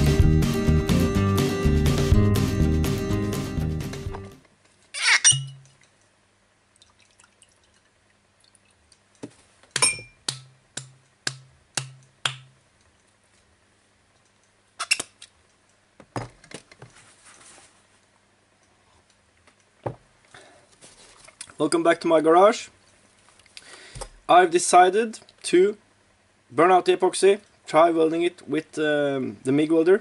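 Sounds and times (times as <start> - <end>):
glass clinks: 5.1 - 5.7, 9.8 - 10.2.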